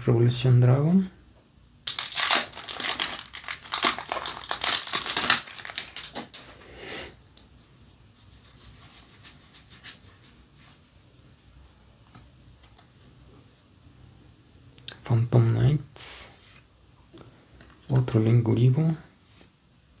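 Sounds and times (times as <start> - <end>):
foil wrapper tearing and crinkling: 1.9 - 6.5.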